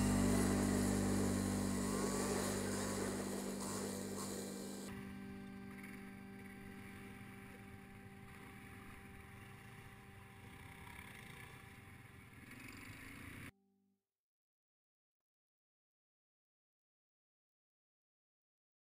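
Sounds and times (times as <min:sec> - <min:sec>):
atv engines humming: 0:00.0 - 0:04.9.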